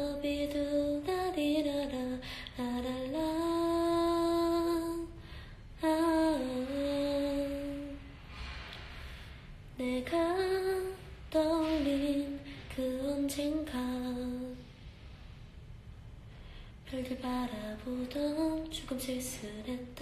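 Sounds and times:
woman singing unaccompanied: 0.0s - 5.2s, 5.8s - 8.0s, 9.8s - 14.6s, 16.9s - 20.0s.

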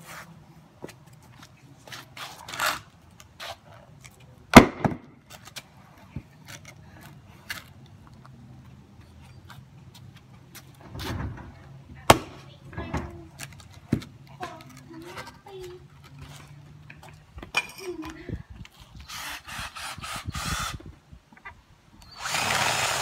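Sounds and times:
rustle: 0.0s - 4.4s.

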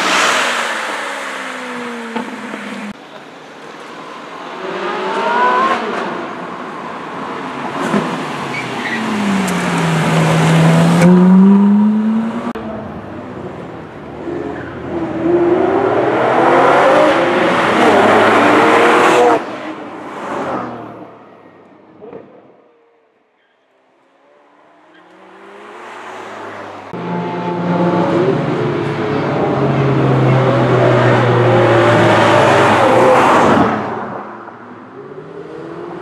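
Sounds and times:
sports car engines revving: 4.4s - 6.7s, 7.7s - 21.0s, 24.6s - 36.0s.

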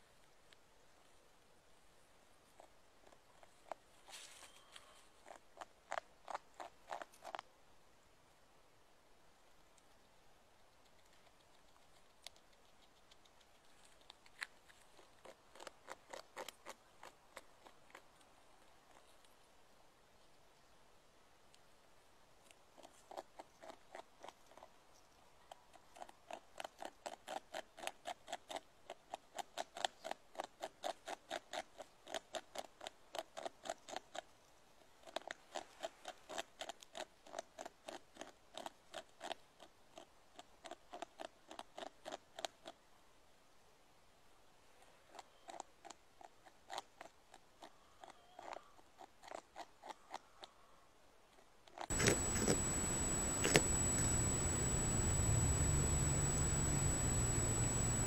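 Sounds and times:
beaver gnawing wood: 51.9s - 58.0s.

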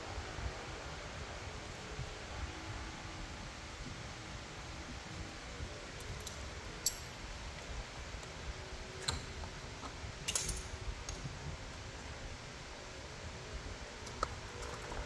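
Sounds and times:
light metallic clinks: 6.0s - 7.2s, 10.2s - 11.3s.

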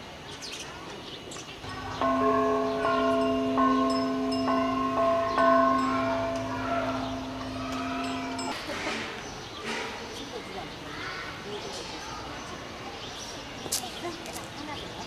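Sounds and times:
metal bells ringing: 1.6s - 8.7s.

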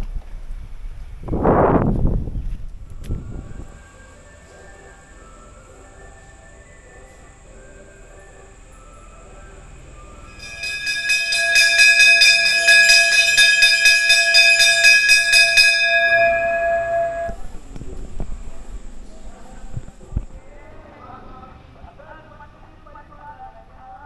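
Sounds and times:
brass bell ringing: 10.3s - 17.7s.

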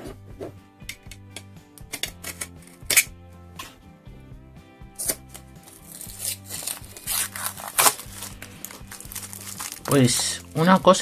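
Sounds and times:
soft background music: 0.0s - 11.0s
knife slitting paper seal: 5.0s - 9.7s
paper label tearing: 5.0s - 10.0s.

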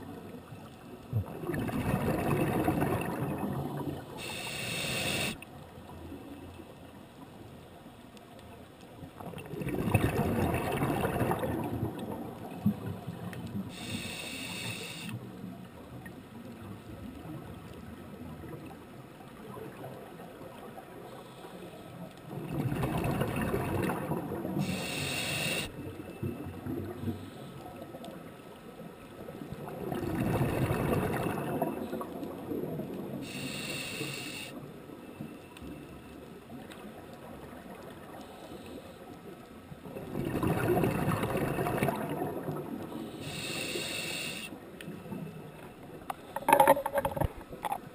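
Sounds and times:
exhaled bubbles rushing: 1.1s - 4.1s, 9.2s - 13.2s, 22.3s - 24.6s, 29.6s - 32.8s, 39.9s - 42.9s
regulator hissing inhalation: 4.2s - 5.4s, 13.8s - 15.2s, 24.6s - 25.7s, 33.3s - 34.6s, 43.1s - 44.6s.

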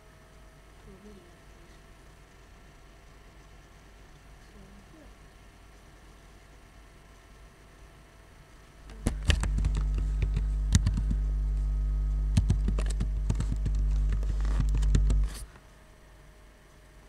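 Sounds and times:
steady low hum: 0.0s - 17.0s
keyboard typing: 8.9s - 11.4s, 12.3s - 15.5s.

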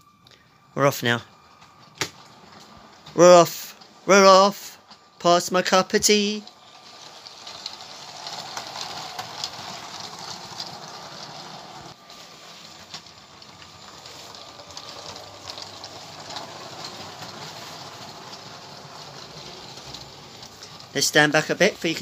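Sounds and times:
toy train motor whir: 1.0s - 22.0s.

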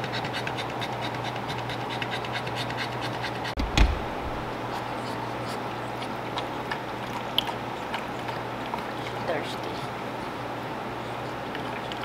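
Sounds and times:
dull thump: 3.6s - 4.6s.

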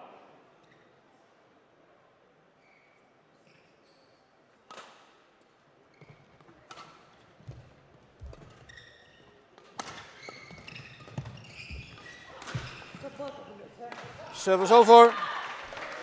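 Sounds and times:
shoe squeaks: 2.6s - 4.4s, 5.9s - 6.6s, 8.2s - 13.5s
racket hitting shuttlecock: 9.6s - 14.2s.

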